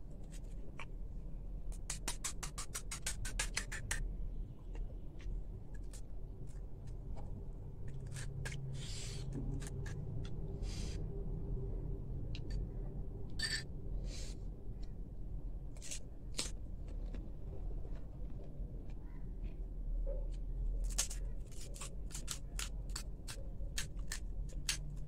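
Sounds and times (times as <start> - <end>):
low steady hum: 0.0 - 3.0, 3.6 - 25.0
chewing: 15.8 - 19.6
crisp shells crunching: 20.8 - 23.1.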